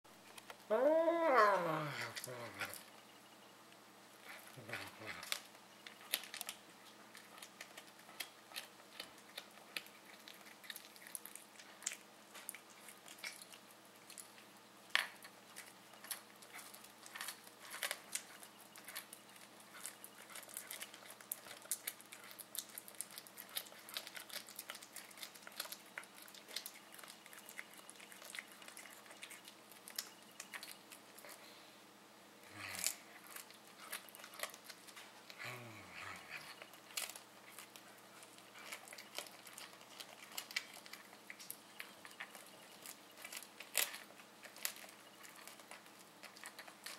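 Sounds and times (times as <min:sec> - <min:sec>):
cat chewing with crunching clicks: 0:03.7 - 0:31.5, 0:32.8 - 0:46.9.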